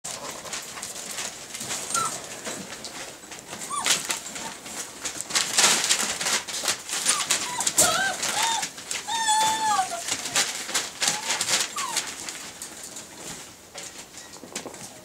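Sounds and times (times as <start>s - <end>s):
newspaper crackling: 0.1s - 15.0s
paws scrabbling: 0.1s - 15.0s
puppies whimpering: 1.8s - 2.4s, 3.5s - 4.8s, 7.0s - 12.3s.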